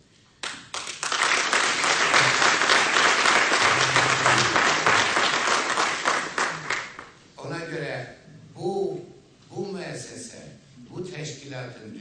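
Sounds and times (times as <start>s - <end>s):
audience applauding: 0.4s - 7.2s.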